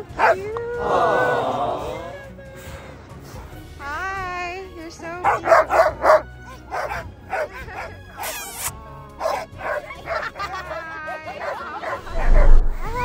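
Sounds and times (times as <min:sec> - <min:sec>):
dogs barking and yipping: 0:00.0 - 0:00.4, 0:05.2 - 0:12.7
dog yelping high-pitched: 0:05.2 - 0:10.3.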